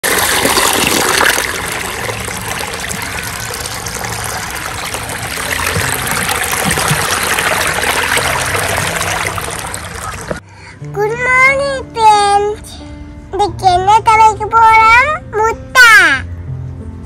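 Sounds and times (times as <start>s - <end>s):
water running over stones: 0.0s - 10.4s.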